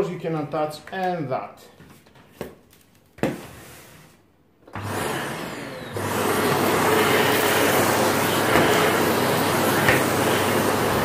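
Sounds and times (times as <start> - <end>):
vacuum cleaner motor whirring: 4.6 - 11.0.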